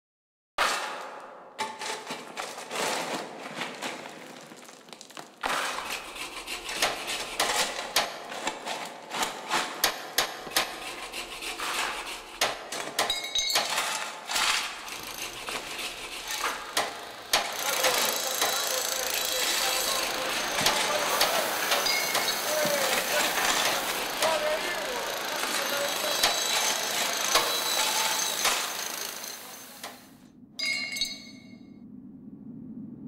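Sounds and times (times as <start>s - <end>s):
steady background noise: 14.7s - 30.2s.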